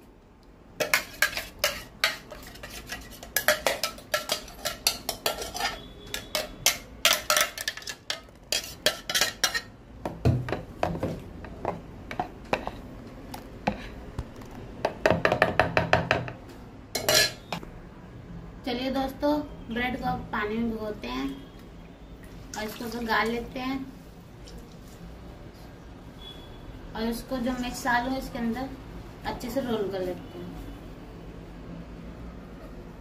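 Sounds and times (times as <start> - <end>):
spoon scraping metal jar: 0.8 - 9.7
spoon stirring in plastic bowl: 0.8 - 9.7.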